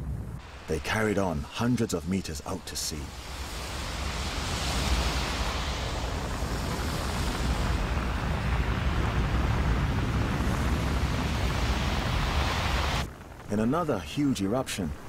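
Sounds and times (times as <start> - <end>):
rushing hiss: 0.4 - 13.1
deep rumble: 2.6 - 13.6.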